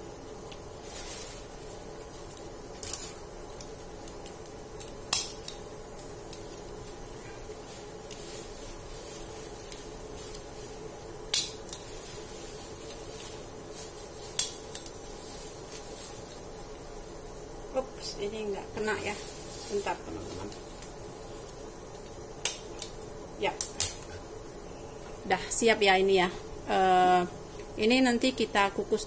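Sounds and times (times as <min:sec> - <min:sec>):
background hum: 0:00.0 - 0:29.0
leaf rustling: 0:00.4 - 0:05.0, 0:05.9 - 0:23.6.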